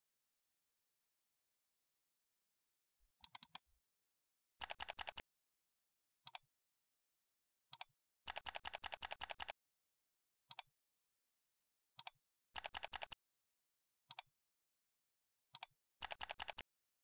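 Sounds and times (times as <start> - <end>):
computer mouse clicks: 3.2 - 3.6, 4.6 - 5.2, 6.2 - 6.4, 7.7 - 9.6, 10.5 - 10.7, 12.0 - 13.2, 14.1 - 14.3, 15.5 - 16.6
keyboard typing: 4.6 - 5.2, 8.3 - 9.5, 12.6 - 13.2, 16.0 - 16.6.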